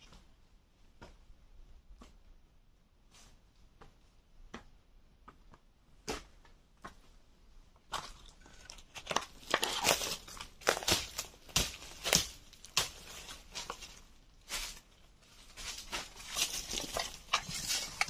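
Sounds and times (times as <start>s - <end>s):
footsteps crunching dry leaves: 9.3s - 18.0s
brushing past undergrowth: 9.8s - 18.0s.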